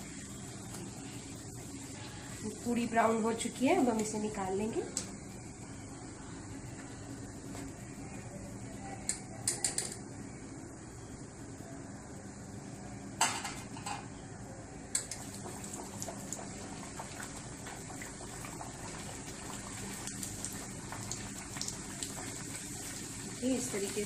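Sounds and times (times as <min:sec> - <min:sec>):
hot oil sizzling and crackling: 0:00.0 - 0:05.2, 0:15.0 - 0:24.0.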